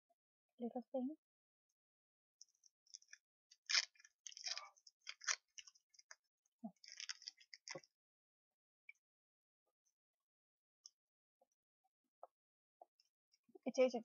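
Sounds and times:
paper wrapper crinkling: 2.9 - 6.2, 6.8 - 7.8.

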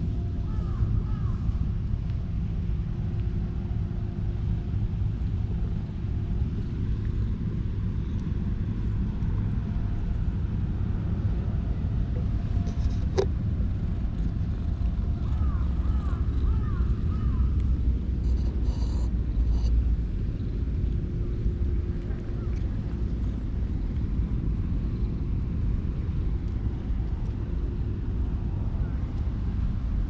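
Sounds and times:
low outdoor rumble: 0.0 - 30.0
crow cawing: 0.5 - 1.4, 15.3 - 17.5.

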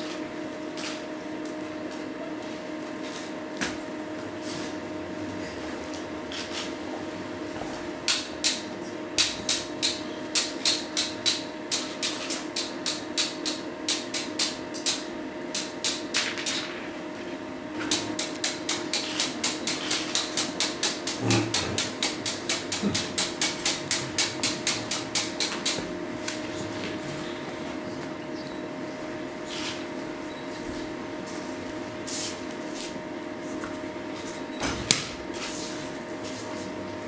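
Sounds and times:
electrical hum: 0.0 - 37.0.

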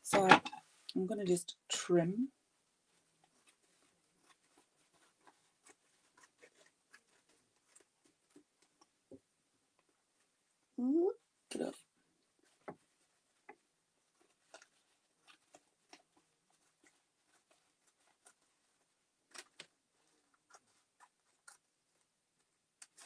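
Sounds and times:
paper rustling: 2.9 - 8.9, 12.4 - 23.0.

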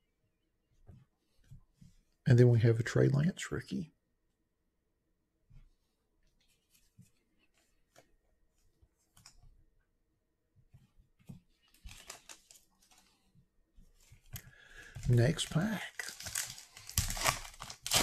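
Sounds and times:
cards and foil pack rustling: 11.7 - 13.3, 14.8 - 18.0.

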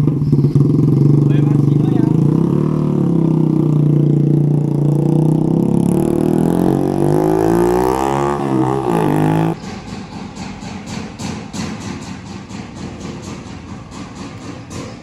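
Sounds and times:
motorcycle engine revving: 0.0 - 15.0.

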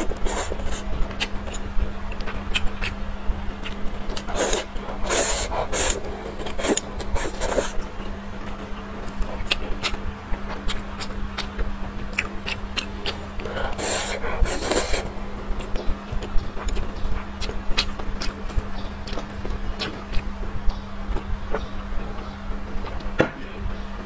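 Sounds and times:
slurping noodles: 0.0 - 0.9, 4.2 - 7.8, 13.1 - 15.1
wet chewing clicks: 0.0 - 3.0, 3.6 - 23.1.

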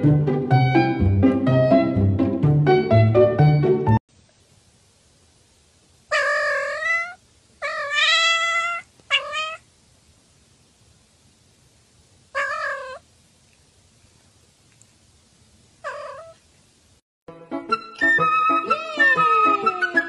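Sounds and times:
cat meowing: 6.1 - 9.6, 12.3 - 13.0, 15.8 - 16.4, 18.6 - 20.0
cat closed-mouth mmm: 13.4 - 15.0.

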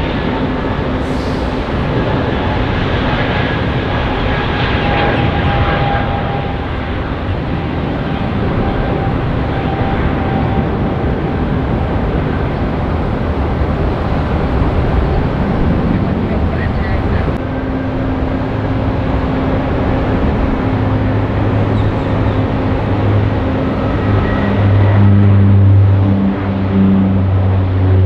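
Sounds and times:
jet engines at takeoff power: 0.0 - 28.0
thin whining tone: 17.4 - 28.0.

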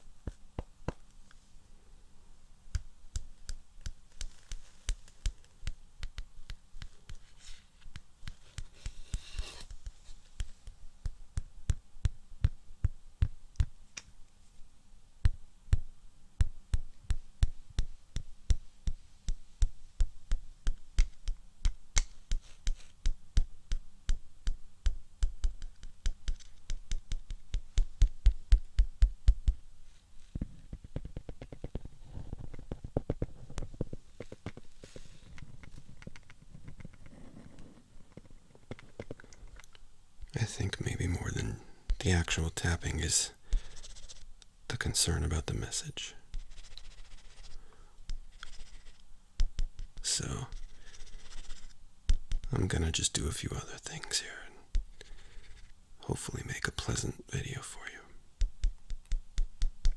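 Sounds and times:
scratchy rustle: 4.1 - 5.6, 6.8 - 10.6, 29.8 - 39.5, 41.4 - 44.3, 46.2 - 47.6, 48.2 - 49.0, 49.8 - 51.8
fingers tapping on hard objects: 15.2 - 29.6, 30.7 - 34.7, 48.1 - 51.0, 52.1 - 52.5, 58.4 - 59.9.

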